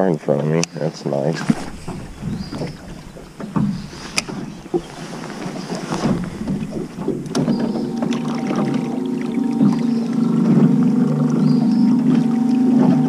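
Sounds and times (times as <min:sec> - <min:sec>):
background hiss: 0:00.8 - 0:08.2
knocks and clicks in metal boat: 0:01.4 - 0:08.8.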